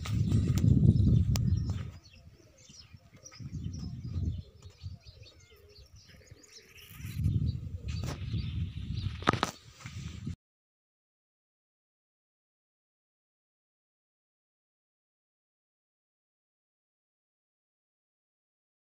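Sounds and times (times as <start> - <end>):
birds chirping: 0.0 - 9.8
wind buffeting microphone: 0.0 - 10.4.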